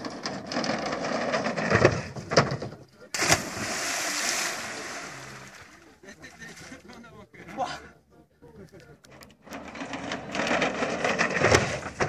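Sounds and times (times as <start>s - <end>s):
bike rolling on pontoon: 0.0s - 3.1s, 9.3s - 12.0s
big splash into water: 3.2s - 5.7s
water rushing: 3.2s - 6.0s.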